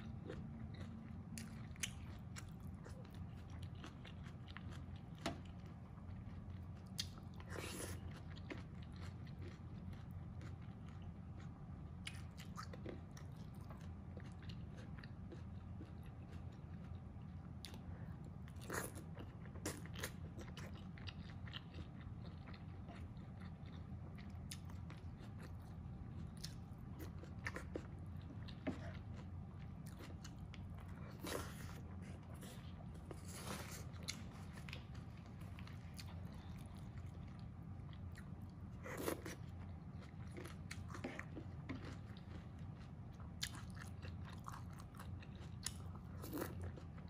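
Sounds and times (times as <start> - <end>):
chewing and mouth sounds: 0.0 - 47.0
steady low hum: 0.0 - 47.0.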